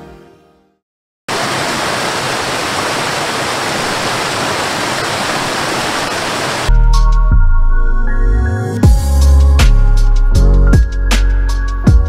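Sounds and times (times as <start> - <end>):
waterfall rushing over rocks: 1.3 - 6.7
music with heavy bass: 6.7 - 12.0.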